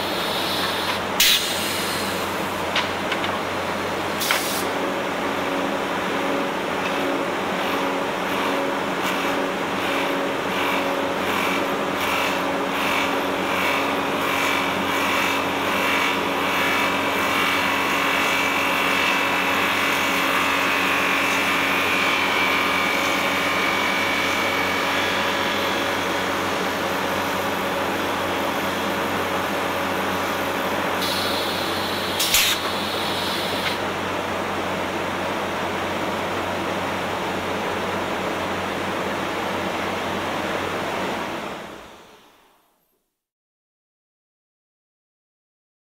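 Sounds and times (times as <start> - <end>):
wood lathe running: 9.8 - 30.2
brief hiss: 31.0 - 33.7.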